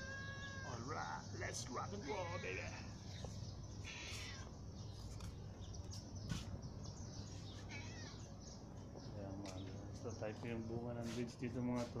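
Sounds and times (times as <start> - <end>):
faint outdoor hum: 0.0 - 12.0.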